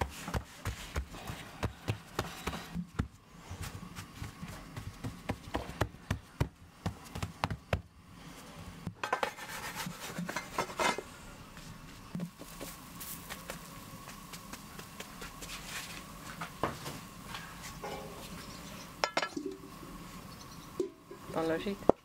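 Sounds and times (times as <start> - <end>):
rustling and brushing of dough: 0.0 - 7.3, 9.2 - 18.6
hands patting dough: 0.0 - 7.9, 12.3 - 15.7.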